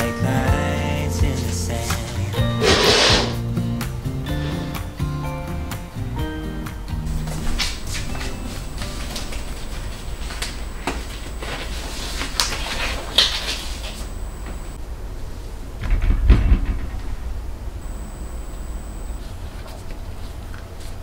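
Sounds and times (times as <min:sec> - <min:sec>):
disposable gloves crinkling: 0:07.2 - 0:14.1.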